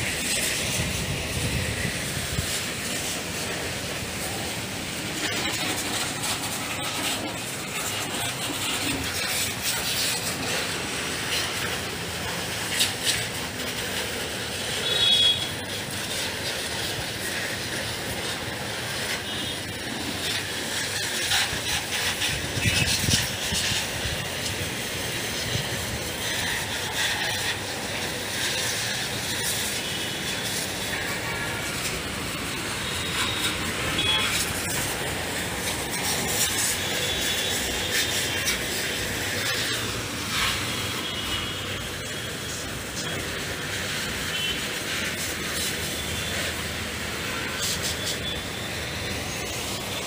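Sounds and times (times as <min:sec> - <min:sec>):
high-pressure water spray hissing: 0:00.0 - 0:50.0.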